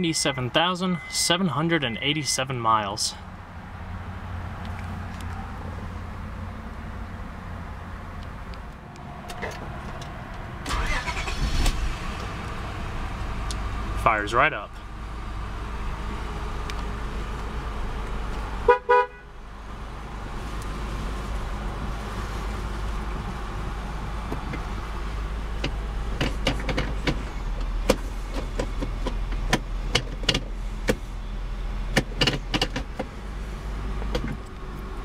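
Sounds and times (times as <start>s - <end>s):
car engine idling: 9.3s - 35.0s
car horn toots: 18.7s - 19.3s.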